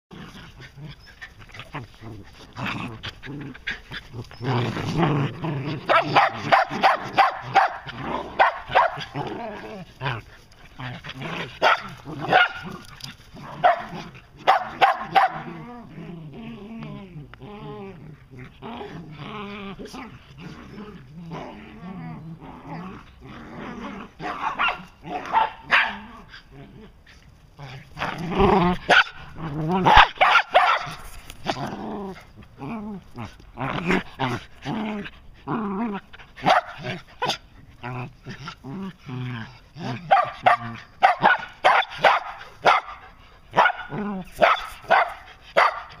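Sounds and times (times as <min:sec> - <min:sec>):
dogs play growling: 0:00.1 - 0:46.0
dogs barking and yipping: 0:05.8 - 0:09.2, 0:11.4 - 0:15.5, 0:24.1 - 0:26.5, 0:28.7 - 0:31.6, 0:36.0 - 0:37.6, 0:39.9 - 0:46.0
dog barking sharply: 0:30.2 - 0:30.9, 0:44.4 - 0:45.8.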